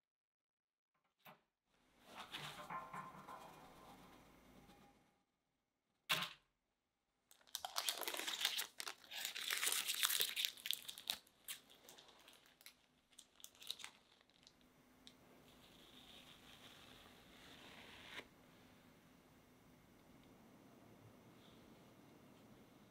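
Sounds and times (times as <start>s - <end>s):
parchment paper crinkling: 7.3s - 14.7s.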